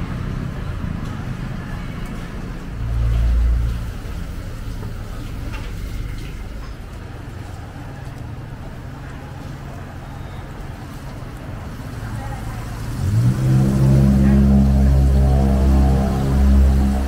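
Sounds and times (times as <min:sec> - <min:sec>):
vehicle passing: 0:00.0 - 0:06.5, 0:10.9 - 0:17.0
road traffic rumble: 0:00.0 - 0:17.0.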